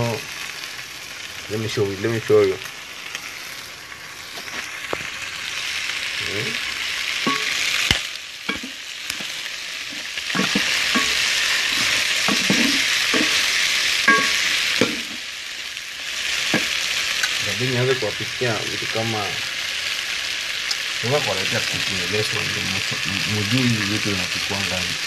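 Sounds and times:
chicken sizzling in a pan: 0.0 - 25.0
wooden spoon knocking on pan: 7.3 - 7.6, 8.5 - 9.3, 10.3 - 13.4, 14.1 - 15.2.

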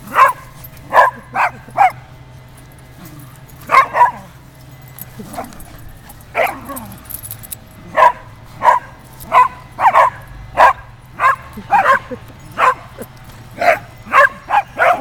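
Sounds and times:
small dog barking: 0.0 - 2.0, 3.6 - 4.3, 6.3 - 6.8, 7.8 - 13.0, 13.6 - 15.0.

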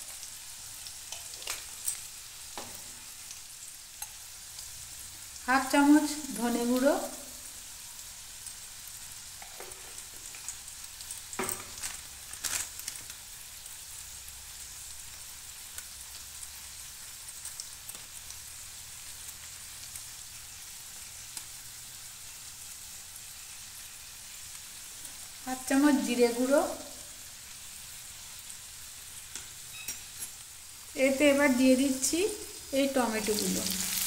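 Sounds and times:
food sizzling in oil: 0.0 - 34.0.

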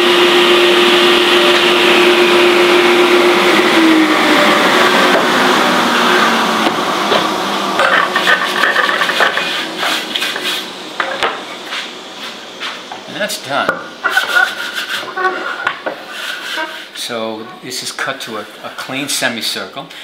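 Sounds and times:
table saw running: 0.0 - 17.9
hand brushing sawdust: 14.0 - 16.8.

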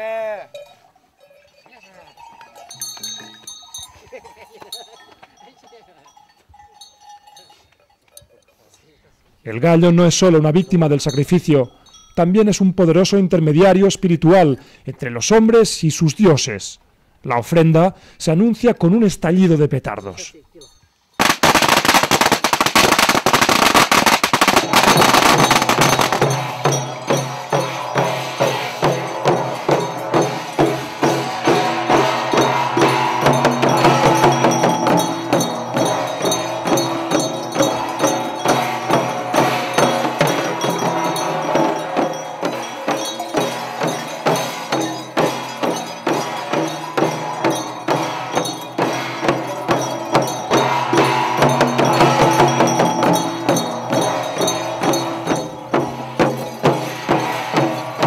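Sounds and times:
hand cymbals beat: 0.2 - 8.4, 9.6 - 12.8, 20.1 - 58.0
firecrackers crackling: 21.2 - 58.0
gongs ringing: 23.1 - 58.0.

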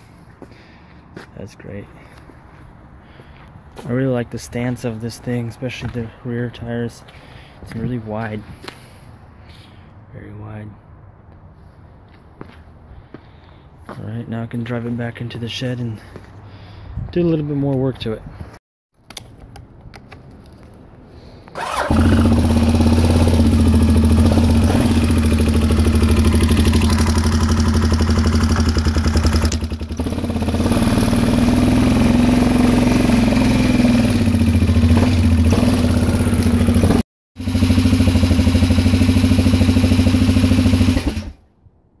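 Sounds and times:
atv engine running: 21.6 - 41.4.

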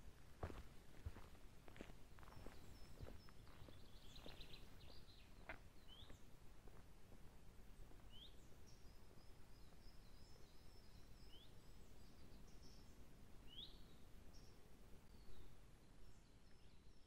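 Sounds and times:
footsteps on forest path: 0.4 - 10.5
small birds chirping: 0.4 - 17.0.

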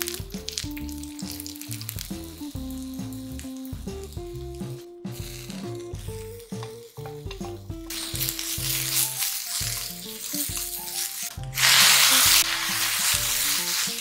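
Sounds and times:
food sizzling in a frying pan: 0.0 - 14.0
light background music: 0.0 - 14.0
liquid hitting hot pan: 5.4 - 14.0.

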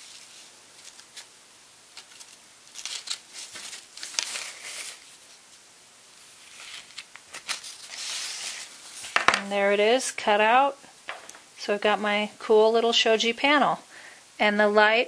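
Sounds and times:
paper crinkling: 0.0 - 5.6, 6.2 - 9.2.

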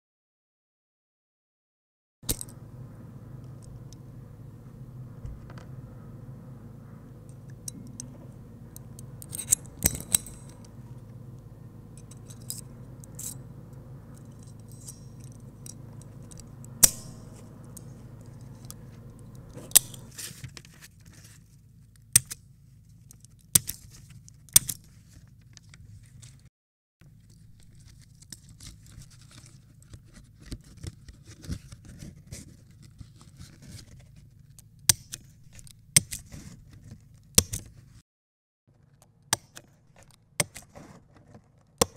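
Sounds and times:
low steady hum: 2.2 - 26.4
metal scrapes and rattles: 6.8 - 20.5.

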